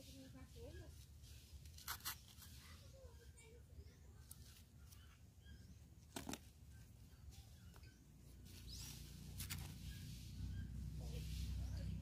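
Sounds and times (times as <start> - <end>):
faint wooden clicks and scrapes: 0.0 - 5.2.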